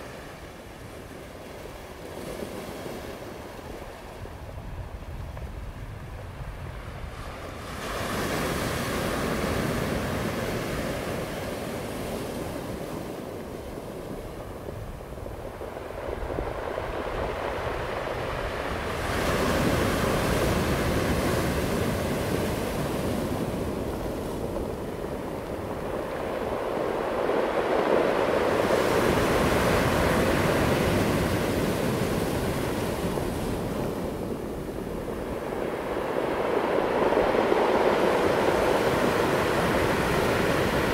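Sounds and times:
ocean surf breaking: 0:07.0 - 0:40.9.

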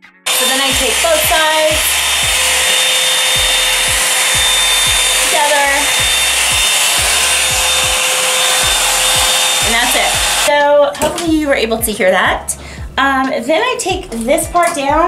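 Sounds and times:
hot-air brush running: 0:00.3 - 0:10.5
regular low thump: 0:03.4 - 0:05.2, 0:05.8 - 0:08.0.

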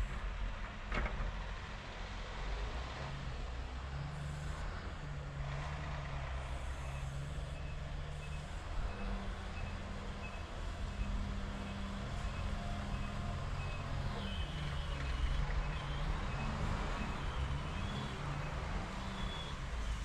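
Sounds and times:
diesel engine running: 0:00.0 - 0:20.0
reversing alarm beeping: 0:06.7 - 0:19.6.

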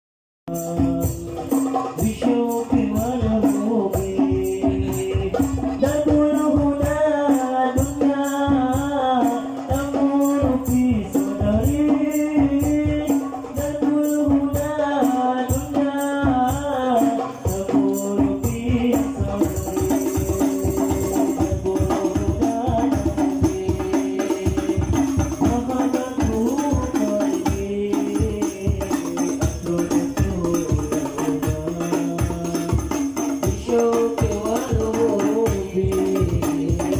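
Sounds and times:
devotional singing: 0:00.5 - 0:36.9
frame drums beating: 0:00.5 - 0:36.9.

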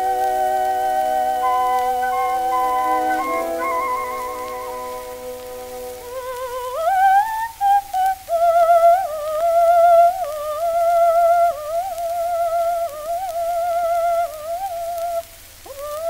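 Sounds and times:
held synth chord: 0:00.0 - 0:06.5
electronic melody with vibrato: 0:00.0 - 0:06.7.

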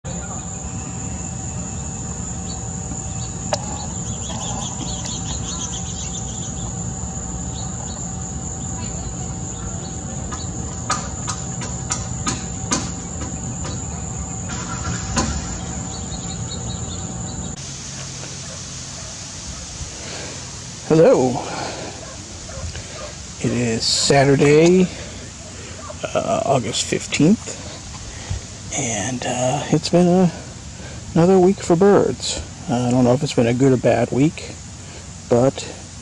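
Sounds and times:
insects droning: 0:00.0 - 0:36.0
bird chirps: 0:00.1 - 0:18.6.

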